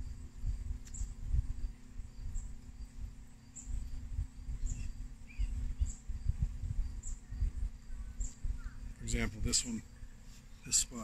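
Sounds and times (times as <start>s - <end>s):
uneven low rumble: 0.0s - 10.3s
steady low hum: 0.0s - 11.0s
faint high chirp: 3.5s - 10.9s.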